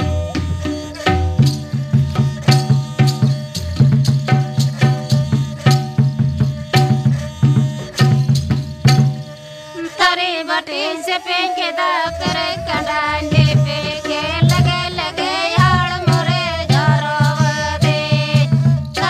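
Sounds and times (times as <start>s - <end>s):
hand drum beat: 0.0s - 9.4s, 12.1s - 19.0s
person singing folk melody: 9.6s - 19.0s.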